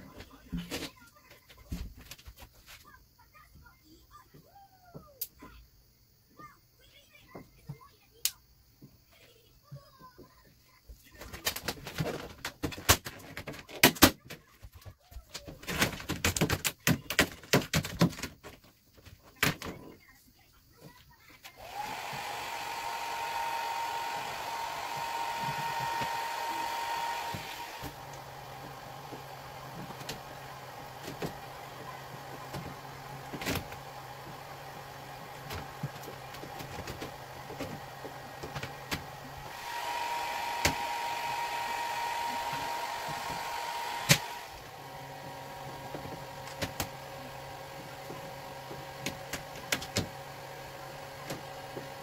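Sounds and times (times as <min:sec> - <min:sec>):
hair dryer blowing whine: 0:21.6 - 0:52.0
hair dryer switch click: 0:43.4 - 0:44.4.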